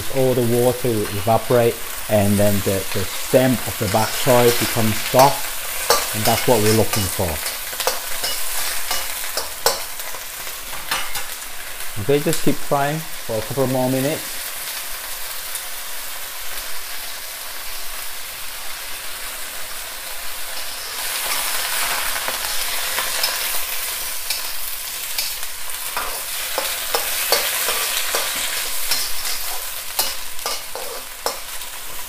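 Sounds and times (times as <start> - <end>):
greens sizzling in a wok: 0.0 - 32.0
metal spatula scraping a wok: 3.8 - 10.2, 20.6 - 32.0.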